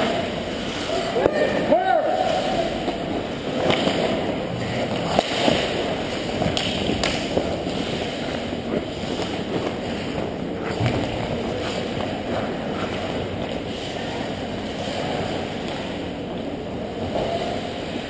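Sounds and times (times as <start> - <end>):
hockey sticks and puck clacking: 0.0 - 17.5
skates scraping ice: 0.0 - 18.0
steady rushing noise: 0.0 - 18.0.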